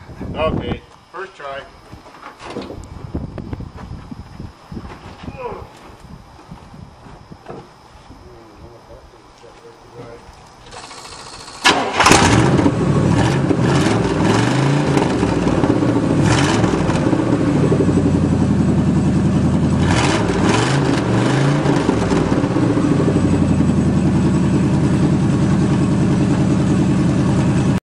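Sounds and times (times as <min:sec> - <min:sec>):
pickup truck engine starting and running: 0:10.6 - 0:27.8.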